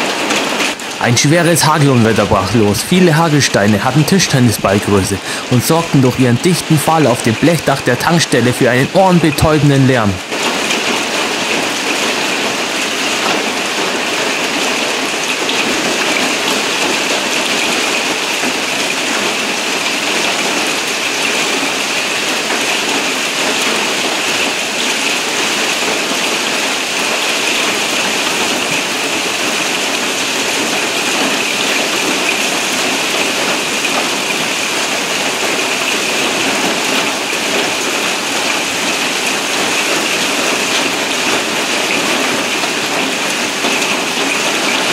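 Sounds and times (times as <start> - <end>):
hail drumming on metal roof: 0.0 - 1.0, 10.2 - 44.9
hail clattering on paving: 10.3 - 44.9.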